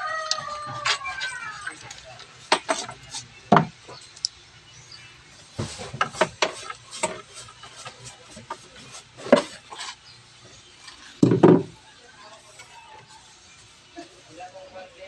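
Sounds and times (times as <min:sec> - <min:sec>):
brush sweeping debris on wood: 0:05.4 - 0:11.2
thump: 0:11.2 - 0:11.7.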